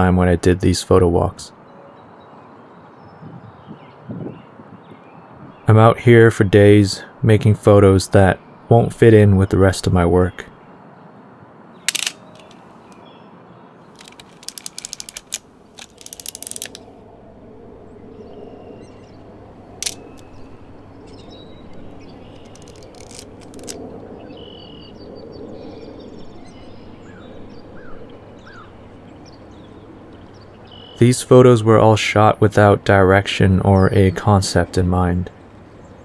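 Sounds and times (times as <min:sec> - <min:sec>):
birds chirping faintly: 0:00.0 - 0:36.0
outdoor ambience: 0:00.0 - 0:36.0
camera advance lever ratcheting: 0:11.9 - 0:12.6, 0:14.0 - 0:16.8, 0:19.8 - 0:20.4, 0:21.7 - 0:23.8
camera shutter click: 0:11.9 - 0:12.6.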